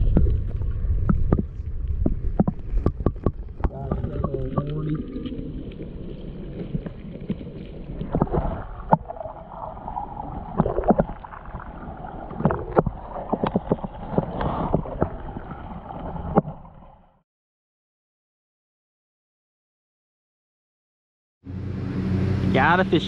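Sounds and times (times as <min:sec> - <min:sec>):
water splashing and sloshing: 0:00.0 - 0:17.2.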